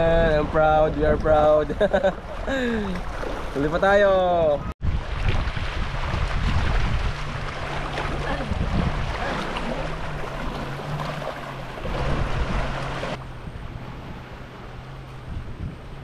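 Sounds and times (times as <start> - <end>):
wind buffeting microphone: 0.0 - 3.6, 4.4 - 16.0
sea waves washing ashore: 0.0 - 16.0.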